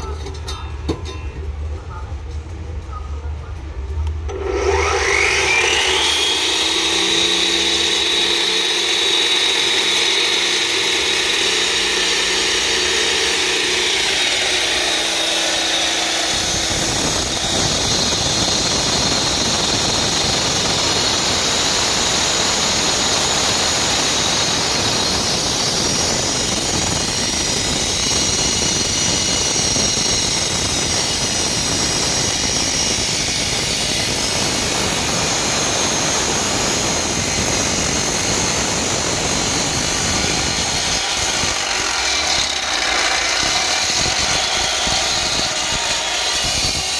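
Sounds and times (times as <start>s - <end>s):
concrete cutter whine: 0.0s - 1.5s, 4.2s - 46.9s
concrete cutter grinding: 4.3s - 46.9s.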